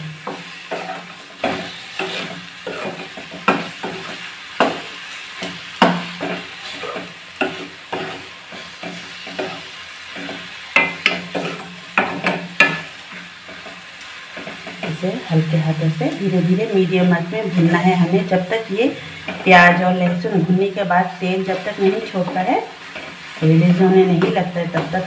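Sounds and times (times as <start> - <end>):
paste frying in oil: 0.0 - 25.0
metal ladle scraping a metal pan: 0.3 - 4.3, 6.1 - 12.4.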